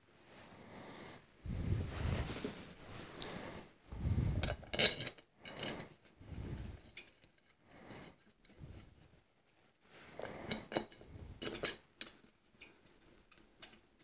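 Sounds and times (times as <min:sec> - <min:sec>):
metal parts clinking and clicking: 0:03.1 - 0:03.4.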